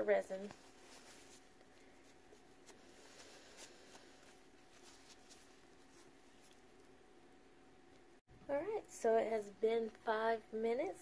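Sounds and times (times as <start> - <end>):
paper towel rustling: 0.3 - 6.7.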